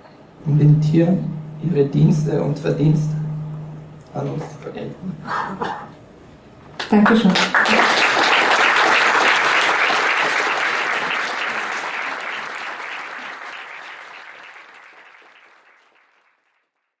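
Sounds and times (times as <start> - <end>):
audience applauding: 6.8 - 16.9.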